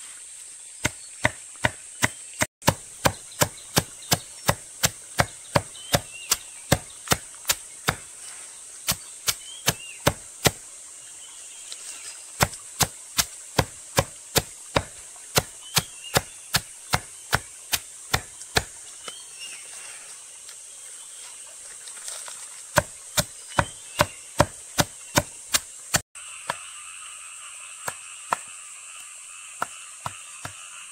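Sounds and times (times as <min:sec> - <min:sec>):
blade chopping: 0:00.8 - 0:08.1, 0:08.9 - 0:10.6, 0:12.4 - 0:18.7, 0:22.8 - 0:26.6.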